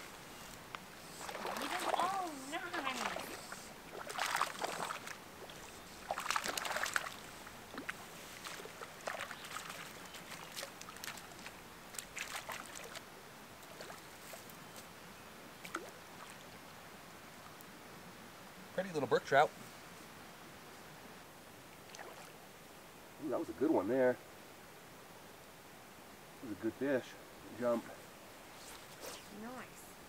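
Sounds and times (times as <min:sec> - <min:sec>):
fish splashing at water surface: 0:01.2 - 0:13.0
water dripping: 0:06.1 - 0:14.0.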